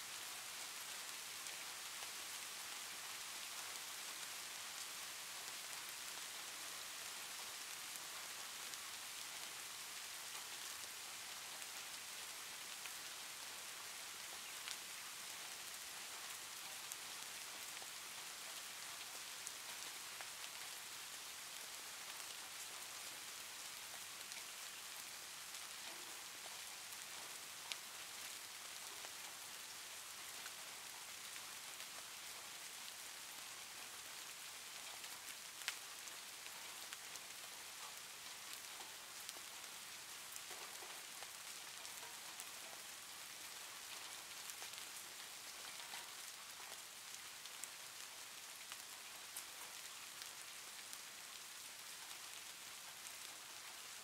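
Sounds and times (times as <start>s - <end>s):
faint steady hiss: 0.0s - 54.0s
faint ticks: 25.5s - 27.9s, 40.3s - 42.9s, 43.5s - 51.4s.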